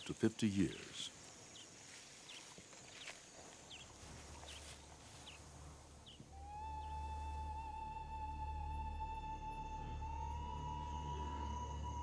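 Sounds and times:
background music with low drone: 0:06.2 - 0:12.0.

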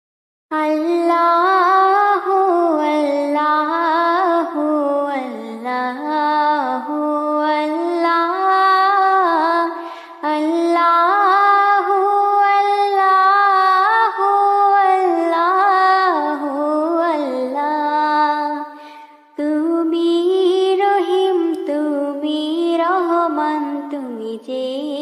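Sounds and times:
person singing unaccompanied: 0:19.4 - 0:25.0.

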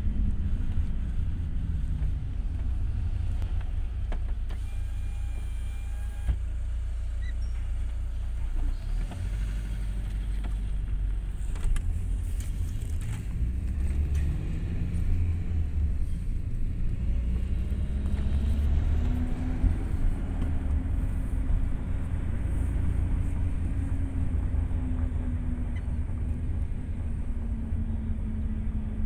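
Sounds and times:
car engine low rumble: 0:00.0 - 0:29.0
electric window motor whining: 0:04.5 - 0:06.4.

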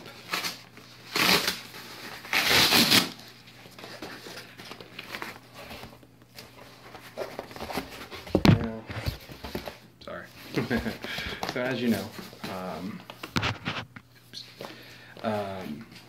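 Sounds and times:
cardboard ripping: 0:00.0 - 0:03.3, 0:10.5 - 0:13.8
cardboard rustling and scraping: 0:00.0 - 0:14.0.

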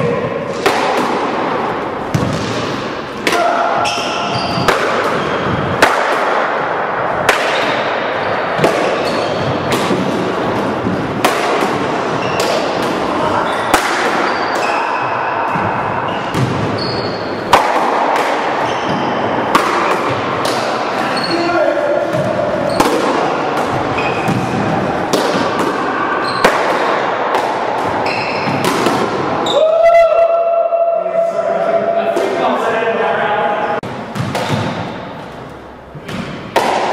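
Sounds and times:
ball hitting walls and floor: 0:00.0 - 0:29.6, 0:33.8 - 0:35.4, 0:36.0 - 0:36.9
racquets striking ball: 0:00.4 - 0:21.4, 0:22.0 - 0:29.5, 0:33.8 - 0:35.3, 0:36.0 - 0:36.9
short squeaks: 0:09.0 - 0:09.7, 0:16.1 - 0:17.4.

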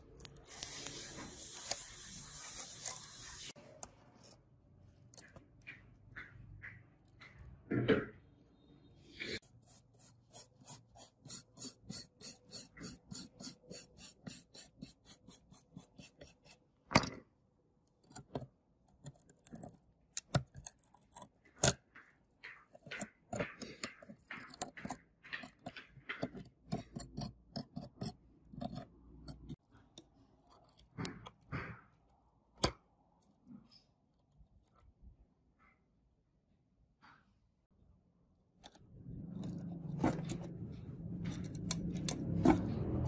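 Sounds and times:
metal tweezers clicking and scraping: 0:00.0 - 0:06.3, 0:17.9 - 0:21.8, 0:22.8 - 0:31.5, 0:38.6 - 0:40.6, 0:41.2 - 0:43.0
stiff brush scrubbing: 0:09.4 - 0:16.6.

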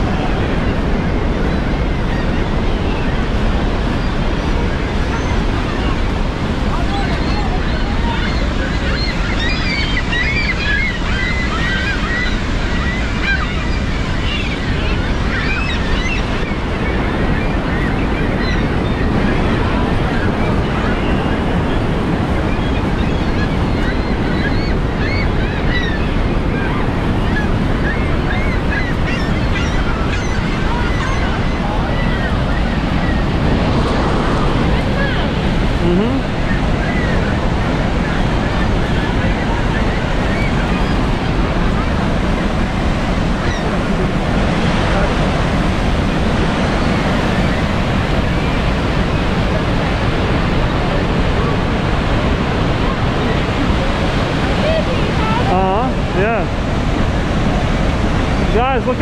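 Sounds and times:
gulls calling: 0:00.0 - 0:59.0
roar of rushing waterfall: 0:00.0 - 0:59.0.

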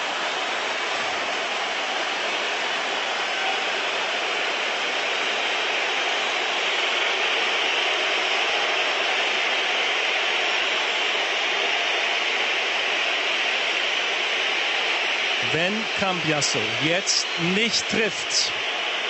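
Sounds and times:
stadium crowd noise: 0:00.0 - 0:19.0.

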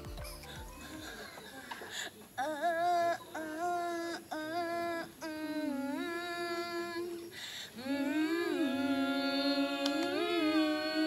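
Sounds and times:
woman singing slow tune: 0:02.8 - 0:11.0.

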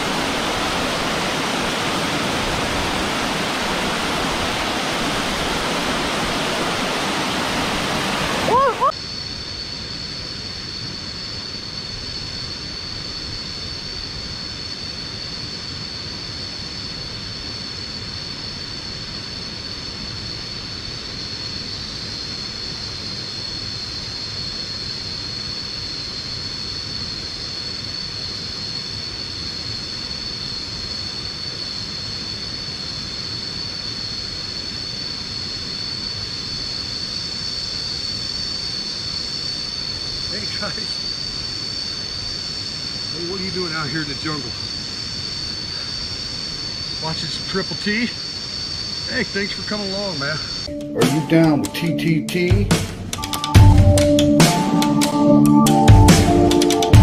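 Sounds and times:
low rushing noise: 0:00.0 - 0:08.5
insect chorus drone: 0:00.0 - 0:57.0.

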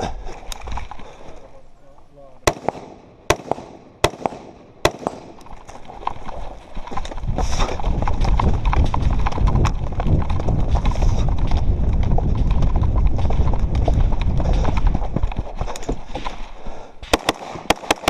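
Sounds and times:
rifle shots: 0:02.4 - 0:05.5, 0:17.1 - 0:18.0
running footsteps on gravel: 0:04.2 - 0:17.2
microphone rumble: 0:05.8 - 0:16.2.

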